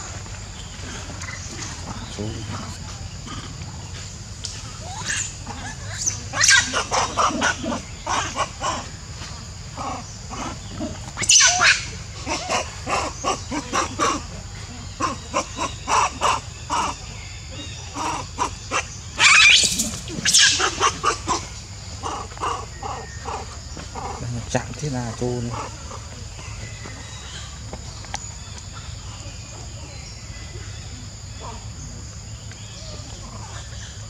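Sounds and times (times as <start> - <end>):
monkeys squealing and screeching: 4.7 - 24.5
monkey screams: 4.8 - 8.9, 9.8 - 14.3, 15.0 - 24.2.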